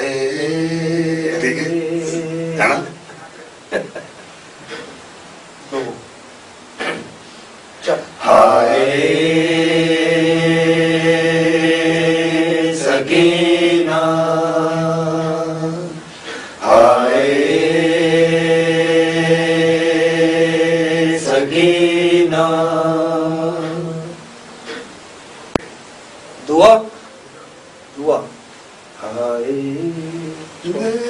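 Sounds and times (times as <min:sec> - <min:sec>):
low male voice chanting: 0:00.0 - 0:03.0.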